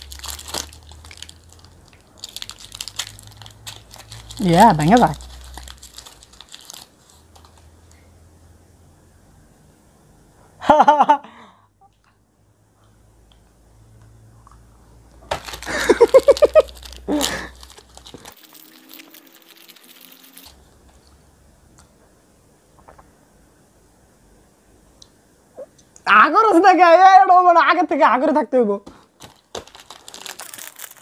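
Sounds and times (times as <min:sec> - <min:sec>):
plastic wrapper crinkling: 0:00.0 - 0:07.8, 0:15.3 - 0:21.2, 0:29.1 - 0:31.0
men laughing: 0:10.6 - 0:11.3, 0:15.7 - 0:17.5.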